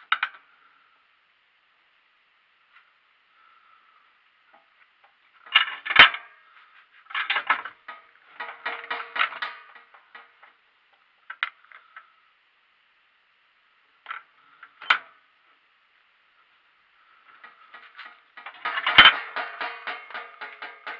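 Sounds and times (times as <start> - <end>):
hand tool scraping metal: 7.1 - 10.4, 17.4 - 20.9.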